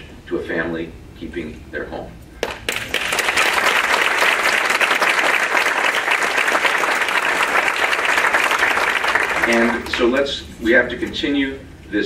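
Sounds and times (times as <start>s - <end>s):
audience applauding: 2.4s - 10.1s.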